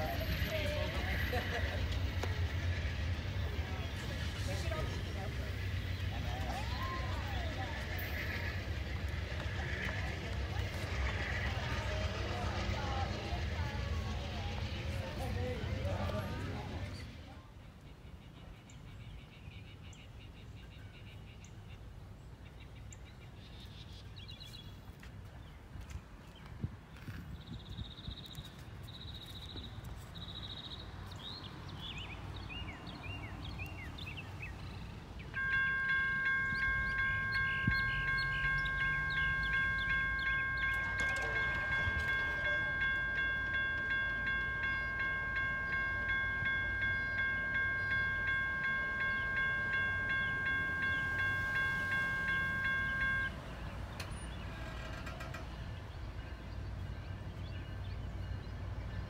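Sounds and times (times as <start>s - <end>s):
railroad crossing bell ringing: 0.0s - 17.2s, 30.4s - 59.0s
bird chirps: 27.4s - 54.7s.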